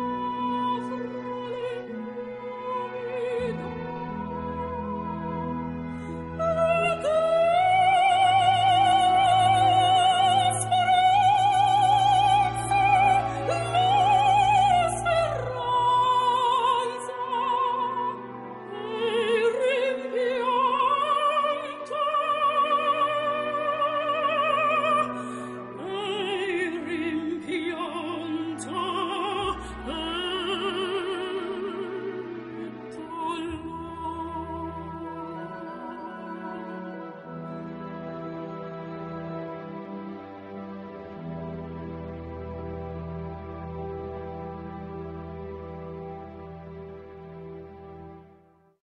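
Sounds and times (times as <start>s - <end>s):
operatic voice singing: 0.0s - 37.9s
orchestral accompaniment: 0.0s - 48.5s.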